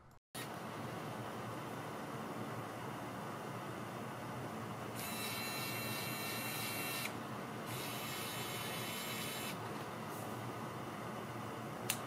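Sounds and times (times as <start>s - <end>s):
electric screwdriver whine: 5.0s - 7.1s, 7.7s - 9.6s.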